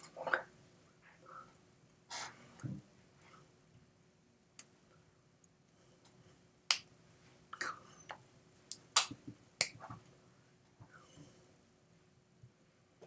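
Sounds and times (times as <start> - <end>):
hands slapping together: 8.7 - 10.0.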